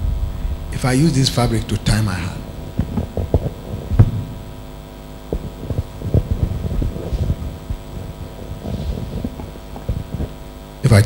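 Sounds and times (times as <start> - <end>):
microphone handling knocks and rubs: 0.0 - 10.8
mains hum: 0.0 - 11.0.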